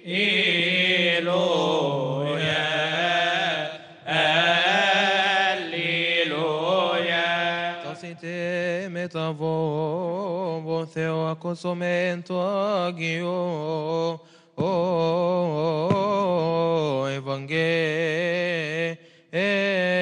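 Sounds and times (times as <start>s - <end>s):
men chanting a hymn: 0.0s - 10.1s.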